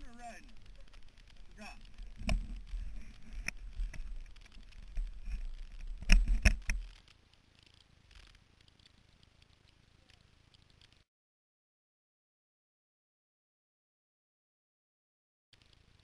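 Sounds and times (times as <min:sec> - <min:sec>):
low rumbling: 0:00.0 - 0:06.4
sharp knocks of jostled camera: 0:04.9 - 0:07.0.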